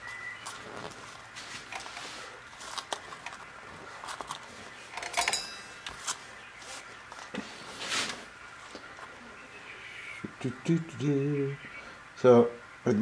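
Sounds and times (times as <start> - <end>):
small clicks and rustles of hands: 0.4 - 5.2.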